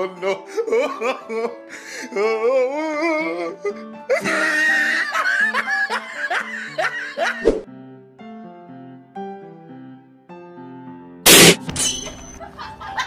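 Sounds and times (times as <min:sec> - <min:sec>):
music: 0:00.0 - 0:13.0
sharp bang: 0:11.3 - 0:12.2.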